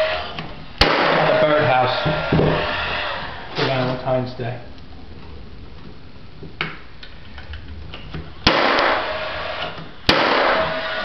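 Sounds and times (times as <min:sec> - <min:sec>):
nail gun firing: 0:00.8 - 0:01.4, 0:08.4 - 0:11.0.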